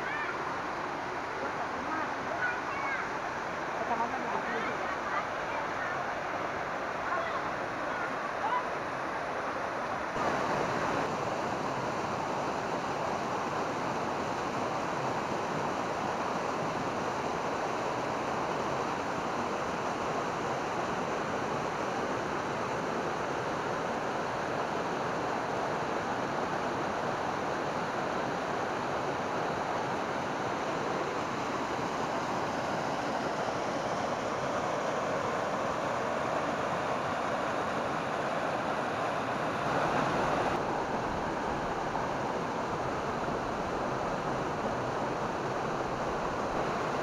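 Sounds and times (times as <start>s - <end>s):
waterfall splashing over rocks: 0.0s - 19.6s.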